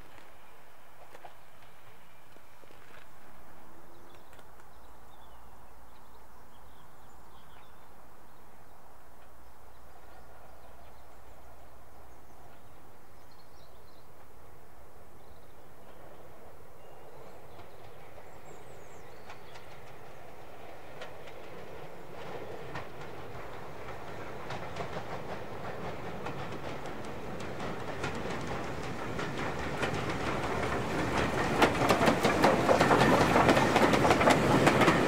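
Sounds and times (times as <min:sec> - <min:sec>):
birds chirping faintly: 0:03.8 - 0:35.0
steam locomotive running: 0:17.1 - 0:35.0.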